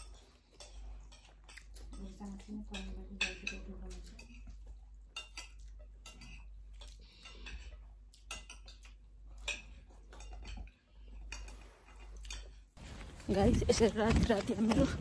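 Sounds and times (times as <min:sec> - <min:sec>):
spoon scraping a plate: 0:00.0 - 0:02.1.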